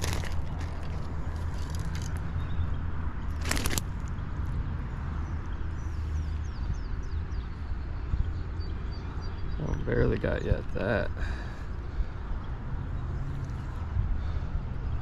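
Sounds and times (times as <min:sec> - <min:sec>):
bird chirping: 0:05.2 - 0:10.9.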